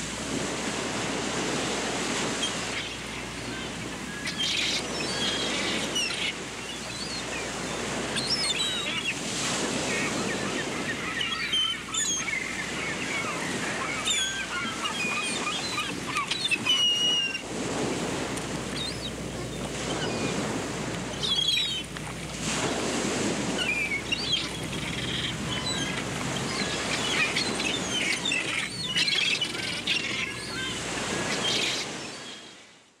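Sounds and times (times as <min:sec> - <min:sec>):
ocean surf waves: 0:00.0 - 0:32.8
small birds chirping: 0:23.6 - 0:32.3.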